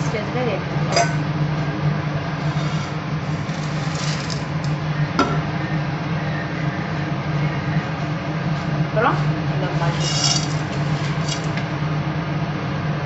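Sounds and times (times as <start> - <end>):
steady low hum: 0.0 - 13.0
spoon scraping a pan: 2.4 - 4.4, 9.7 - 11.6.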